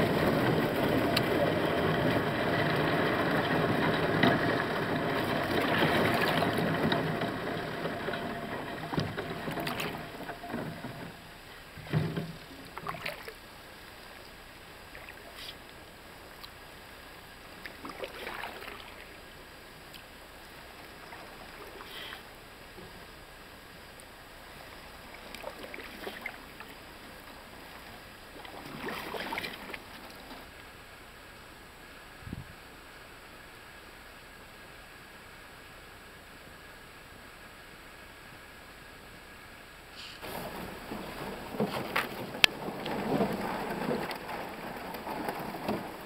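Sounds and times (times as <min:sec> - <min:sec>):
paddle splashes and knocks: 0:00.0 - 0:13.5, 0:17.6 - 0:19.2, 0:24.7 - 0:30.5, 0:40.2 - 0:46.0
rush of water: 0:00.0 - 0:31.2, 0:39.9 - 0:46.0.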